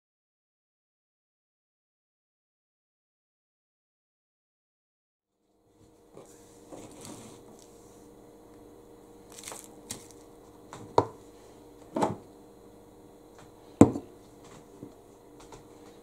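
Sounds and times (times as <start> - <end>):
faint steady hum: 5.4 - 16.0
containers knocking on counter: 13.8 - 14.1.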